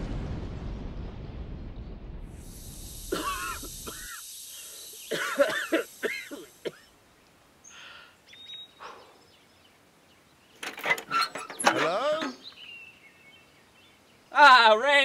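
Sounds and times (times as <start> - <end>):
explosion rumble and hiss: 0.0 - 6.7.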